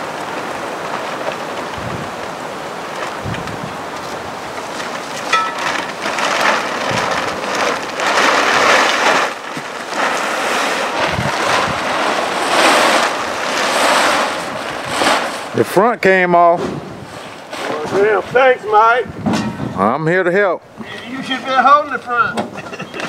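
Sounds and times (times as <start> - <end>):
wind buffeting microphone: 0.0 - 8.4, 10.0 - 15.6, 16.5 - 20.0
plastic tarp flapping: 0.0 - 19.9.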